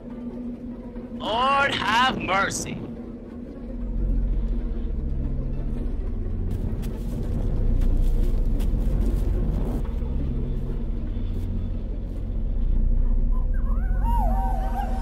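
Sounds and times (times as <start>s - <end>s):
low rumbling hum: 0.0s - 15.0s
crackles and rustles: 6.5s - 12.2s.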